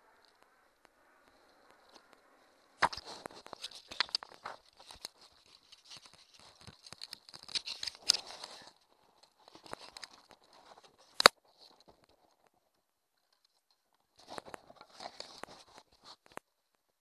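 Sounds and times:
camera handling rustles and scrapes: 2.8 - 12.0, 14.2 - 16.4.

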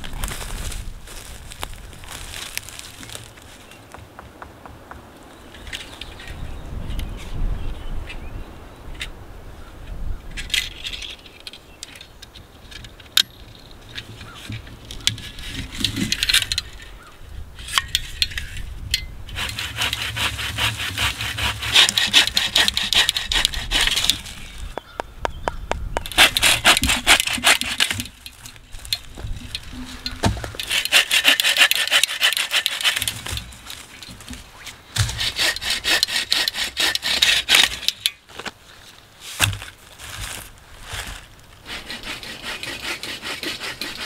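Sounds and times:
dry sticks cracking and rustling: 0.0 - 4.0, 17.7 - 25.0, 26.0 - 41.6
hand saw rasping through branch: 19.3 - 24.5, 26.1 - 28.3, 29.5 - 33.8, 35.0 - 38.0, 41.6 - 44.0.

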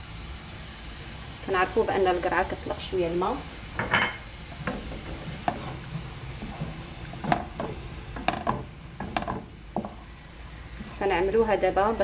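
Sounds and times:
food sizzling in a frying pan: 0.0 - 12.0
wooden spatulas knocking on pan: 7.2 - 10.0.

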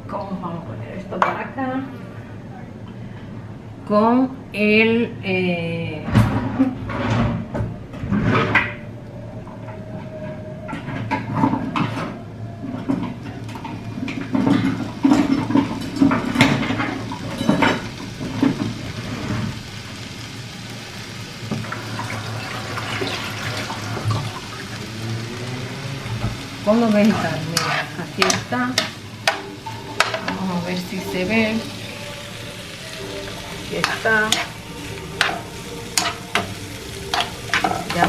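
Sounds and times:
water running: 21.3 - 38.0.

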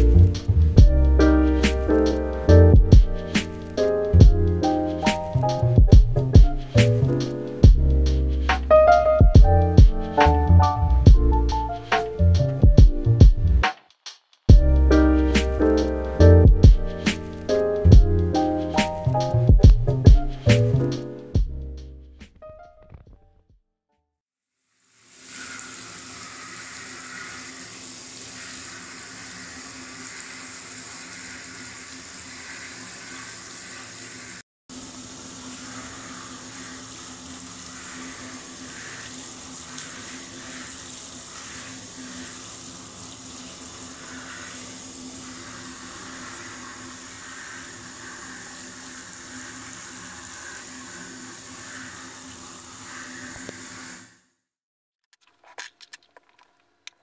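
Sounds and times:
running water rushing: 24.9 - 53.5.

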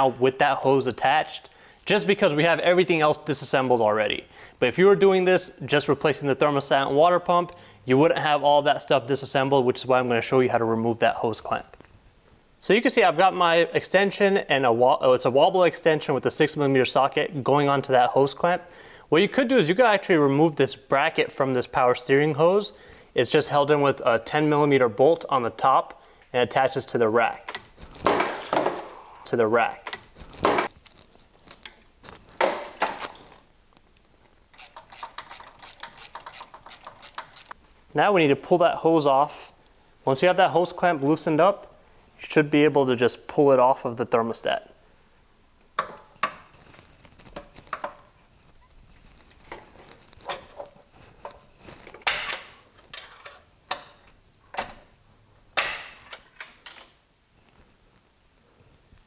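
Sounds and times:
tool scraping: 34.5 - 37.6
ratchet clicking rapidly: 34.6 - 37.6.

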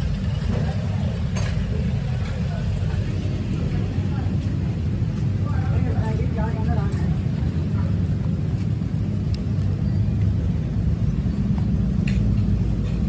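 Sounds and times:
low mechanical rumble: 0.0 - 13.0.

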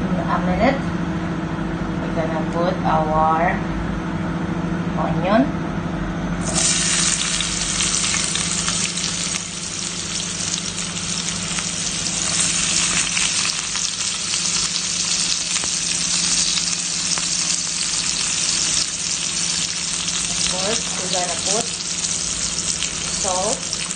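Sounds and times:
onions sizzling in hot oil: 6.4 - 23.9.

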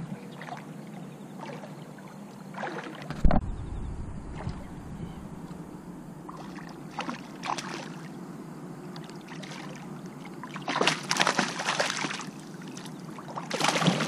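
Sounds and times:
fish splashing in water: 2.5 - 3.1, 6.3 - 8.1, 9.1 - 14.0.

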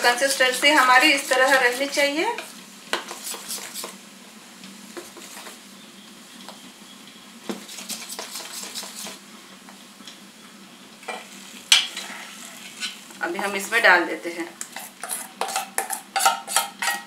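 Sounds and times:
wet batter stirring: 7.7 - 9.2.

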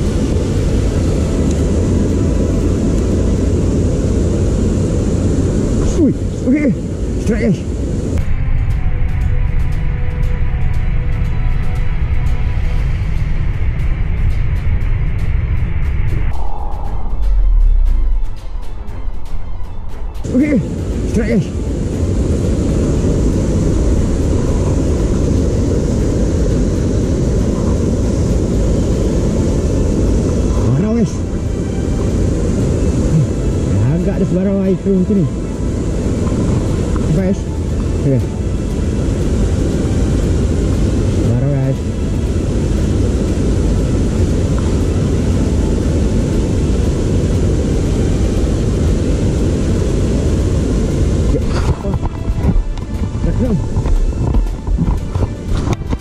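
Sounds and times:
water roaring over a weir: 0.0 - 8.8, 20.2 - 56.0
loud low rumble: 0.0 - 56.0.

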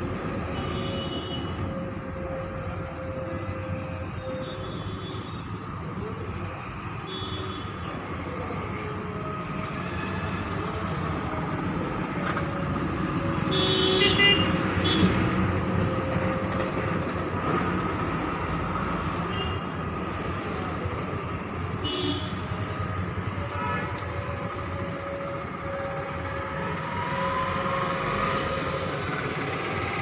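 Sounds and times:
road traffic noise: 0.0 - 30.0
vehicle horns tooting: 13.5 - 15.3, 23.5 - 24.1.

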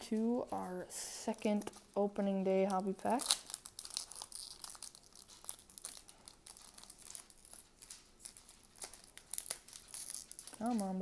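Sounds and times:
foil wrapper crinkling and tearing: 2.6 - 11.0.

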